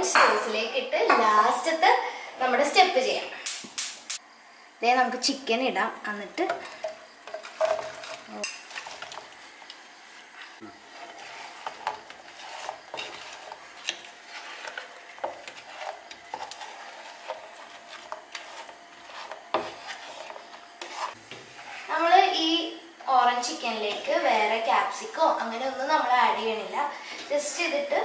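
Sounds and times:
wooden spatula scraping a pan: 6.3s - 22.4s.

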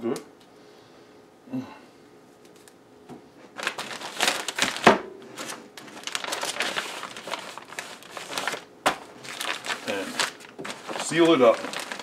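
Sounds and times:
plastic bag crinkling: 3.5s - 12.0s.

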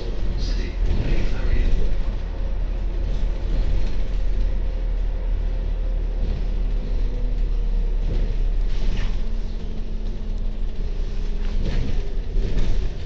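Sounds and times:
bus engine and road rumble: 0.0s - 13.0s.

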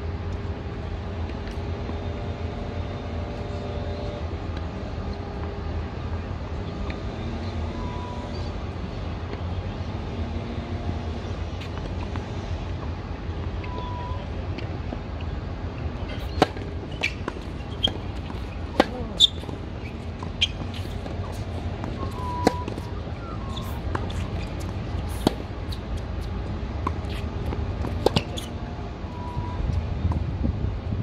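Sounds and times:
steady low rumble: 7.7s - 31.0s
tennis ball bouncing: 16.2s - 28.5s
tennis rackets hitting ball: 16.2s - 28.5s.

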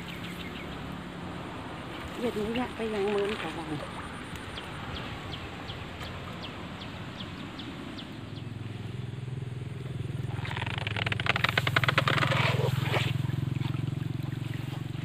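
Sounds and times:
water splashing: 0.0s - 7.2s, 10.2s - 15.0s.

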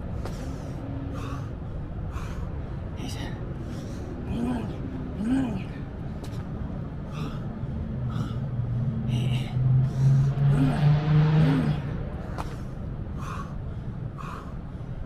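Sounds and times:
person breathing hard: 0.0s - 4.6s, 6.8s - 15.0s
vehicle passing by: 6.6s - 13.4s.

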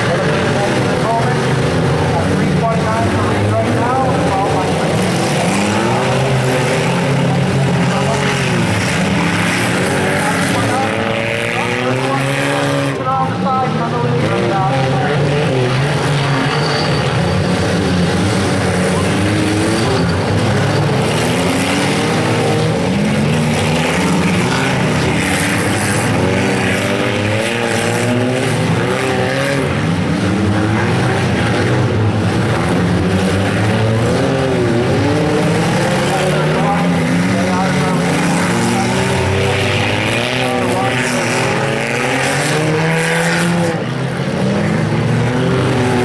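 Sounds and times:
race car engines revving: 0.0s - 46.0s.

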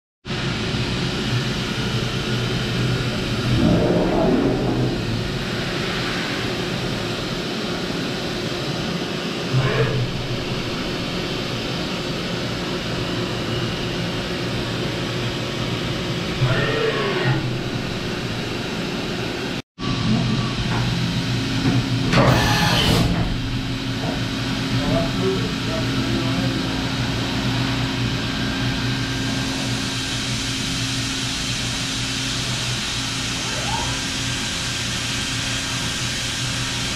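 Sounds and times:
machine hum: 0.3s - 36.9s
gliding machine whines: 1.2s - 21.2s.

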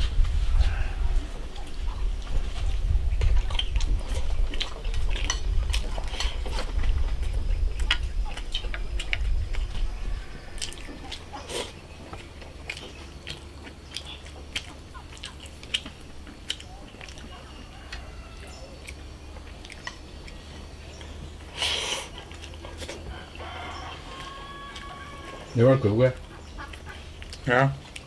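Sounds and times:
low rumble: 0.0s - 13.2s
chewing: 1.0s - 28.0s.

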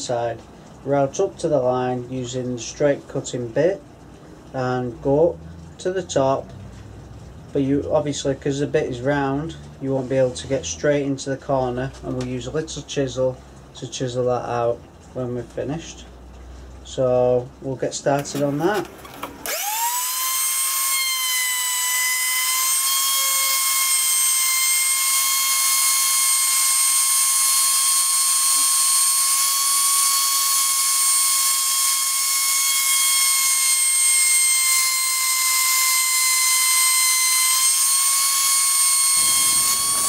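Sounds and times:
router whining: 18.2s - 40.0s.

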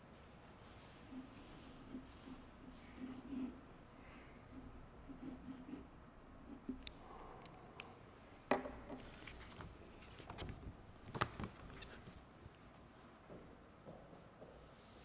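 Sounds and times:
paper and folder clicks and knocks: 8.9s - 12.1s.

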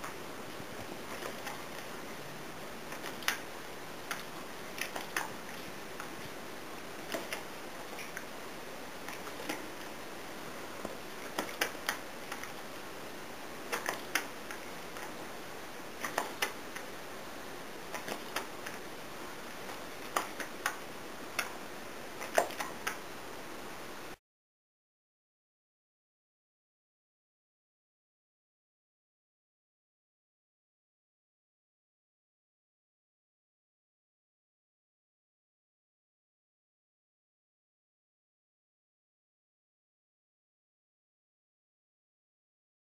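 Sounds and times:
steady hiss: 0.0s - 24.2s.

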